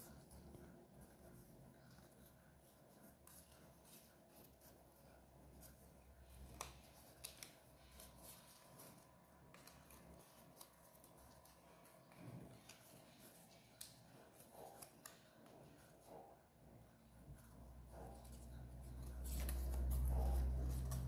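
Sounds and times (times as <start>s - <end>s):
paper crinkling while folded: 0.0s - 16.2s, 17.2s - 21.0s.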